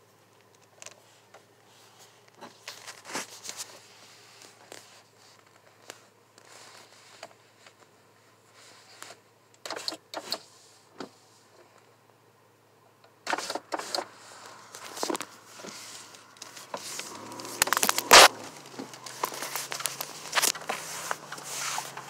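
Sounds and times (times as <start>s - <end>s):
clicks and rustles of handling: 0.2s - 8.0s, 13.3s - 22.0s
low steady hum: 14.0s - 22.0s.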